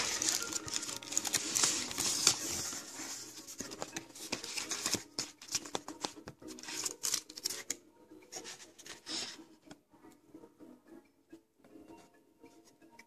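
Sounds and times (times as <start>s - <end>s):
paper and cardboard rustling: 0.0s - 7.8s.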